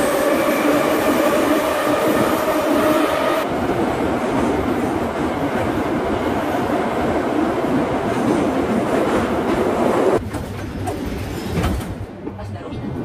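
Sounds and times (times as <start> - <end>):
train rumbling and rattling on rails: 0.0 - 13.0.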